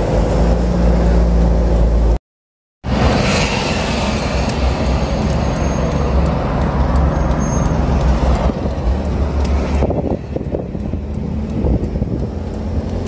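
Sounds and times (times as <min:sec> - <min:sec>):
car cabin road rumble: 0:04.4 - 0:13.0.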